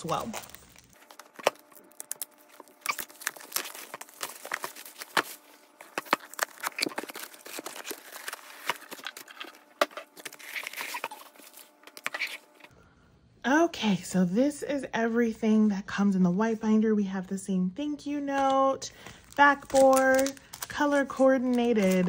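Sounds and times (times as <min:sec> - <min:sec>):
plastic wrap crinkling: 0:00.0 - 0:12.5, 0:19.1 - 0:22.0
cardboard rustling: 0:00.0 - 0:12.7.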